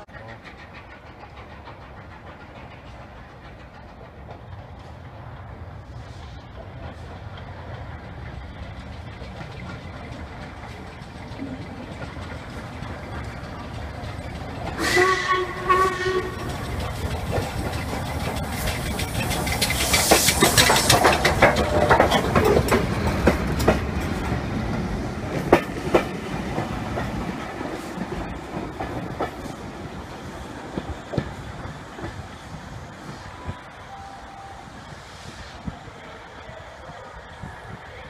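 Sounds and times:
train wheels clattering over rail joints: 0.0s - 33.2s
steam hiss: 0.0s - 38.0s
steam locomotive whistle: 14.8s - 16.6s, 33.2s - 35.1s.

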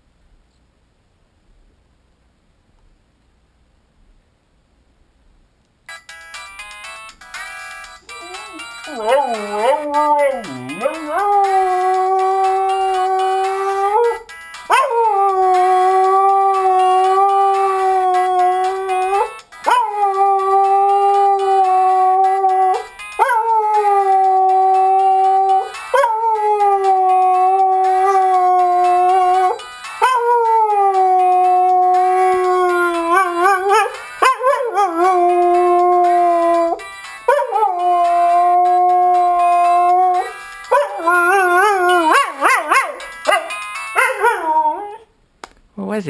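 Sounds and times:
dog howling: 8.4s - 45.1s.

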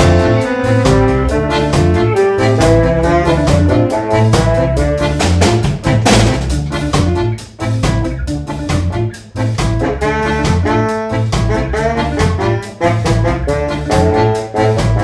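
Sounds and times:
saxophone melody: 0.0s - 15.0s
steady drum beat: 0.0s - 15.0s
walking bass line: 0.0s - 15.0s.

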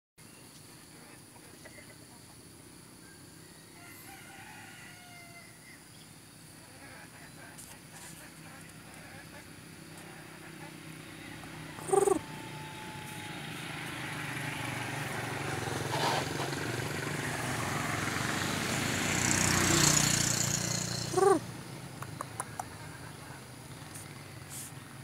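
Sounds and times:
vehicle passing: 7.8s - 25.0s
rooster clucking: 9.0s - 13.2s, 20.9s - 23.4s.

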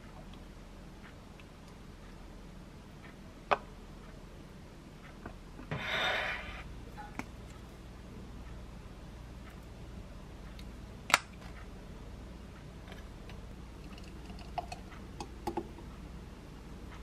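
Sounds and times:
ceramic plate scraping on countertop: 5.7s - 6.7s.

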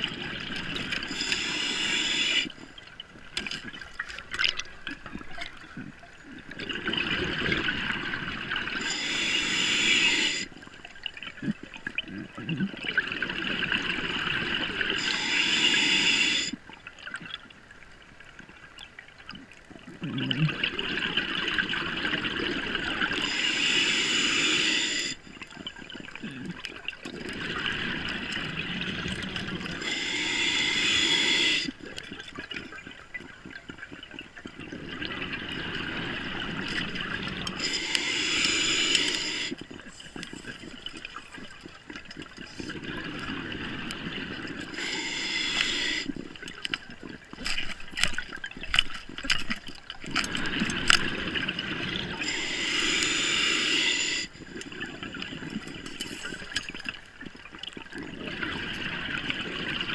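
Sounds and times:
regulator breathing hiss: 1.0s - 2.6s, 8.8s - 10.5s, 15.0s - 16.6s, 23.2s - 25.2s, 29.8s - 31.8s, 37.5s - 39.6s, 44.6s - 46.2s, 52.2s - 54.5s
exhaled bubbles rushing: 6.4s - 8.8s, 25.5s - 29.8s, 31.1s - 44.8s.

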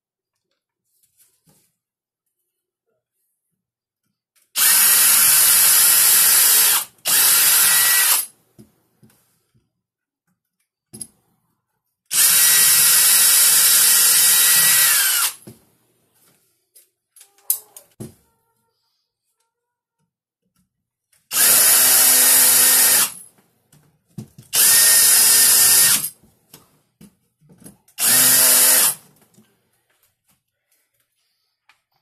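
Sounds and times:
power drill boring into wood: 4.6s - 8.3s, 12.1s - 15.4s, 21.3s - 23.2s, 24.5s - 26.2s, 28.0s - 29.0s.

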